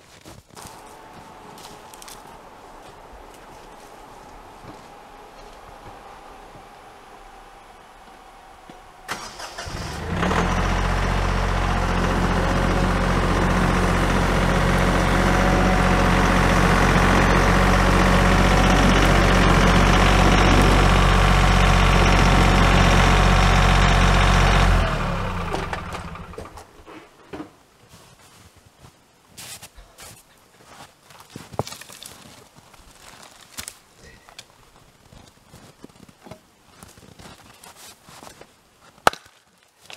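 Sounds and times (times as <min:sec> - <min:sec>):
diesel tractor engine running: 0:00.7 - 0:26.8.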